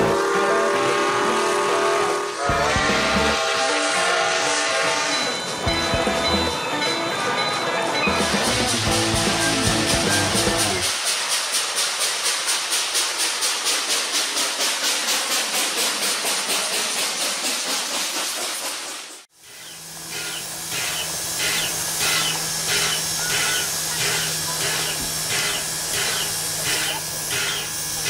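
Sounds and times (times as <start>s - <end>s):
steam locomotive chuffing: 0.0s - 28.0s
steam hissing: 8.1s - 28.0s.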